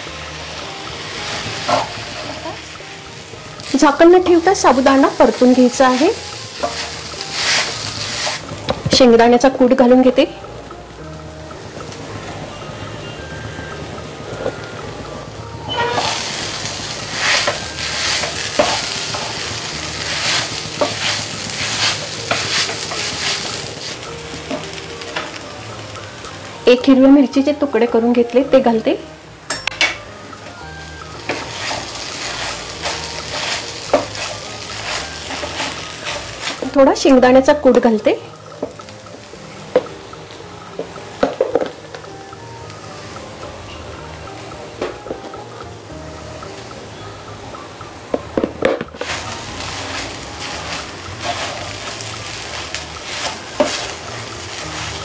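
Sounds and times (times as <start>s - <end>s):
soft sizzle: 0.0s - 55.0s
spatula scraping frying pan: 4.3s - 8.6s, 15.6s - 25.3s, 31.1s - 36.8s, 48.9s - 55.0s.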